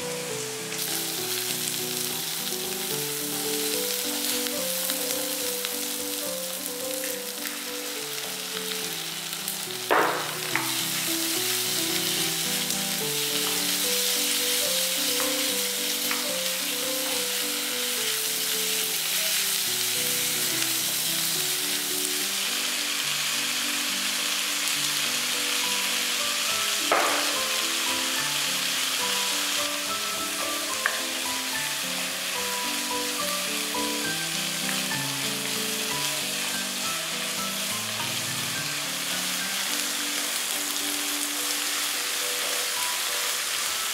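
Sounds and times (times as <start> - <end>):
light background music: 0.0 - 43.9
pork and onions sizzling in pan: 0.0 - 43.9
spatula knocks: 9.9 - 10.7, 26.9 - 27.5.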